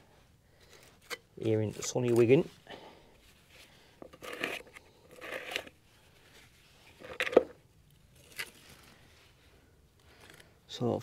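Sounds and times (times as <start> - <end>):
filler scraping: 3.2 - 7.5.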